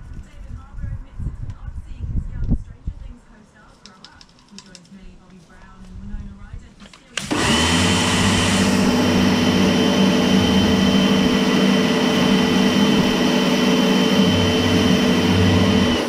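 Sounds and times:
pressure washer jet hissing: 7.2 - 16.0.

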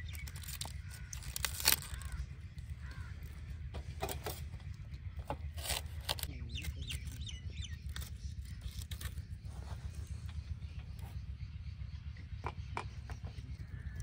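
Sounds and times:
cauliflower leaves snapping: 0.0 - 2.2, 5.5 - 7.2, 7.8 - 9.2
bird calling: 0.0 - 4.5.

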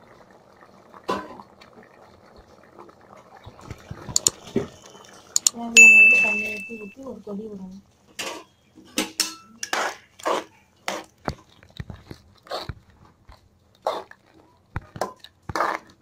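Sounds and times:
ladle scraping thick gravy: 9.6 - 13.2, 15.0 - 16.0.

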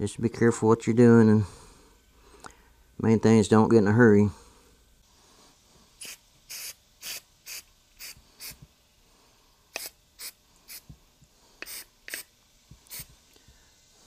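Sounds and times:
aerosol spray hissing: 6.0 - 8.7, 9.7 - 14.0.

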